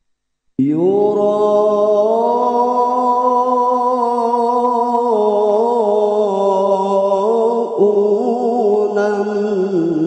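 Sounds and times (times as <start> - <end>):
man reciting melodically: 0.6 - 10.0.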